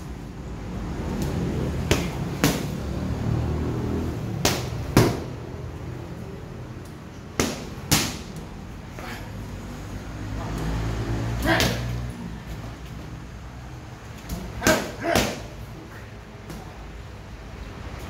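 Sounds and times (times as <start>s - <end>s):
boxing gloves hitting mitts: 1.0s - 3.0s, 3.8s - 5.5s, 6.9s - 9.2s, 10.2s - 13.0s, 14.0s - 15.7s.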